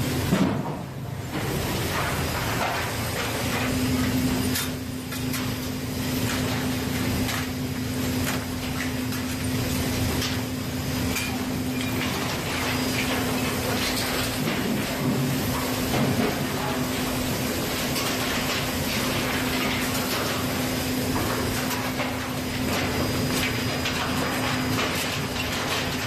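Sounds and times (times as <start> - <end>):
conveyor machinery running: 0.0 - 26.0.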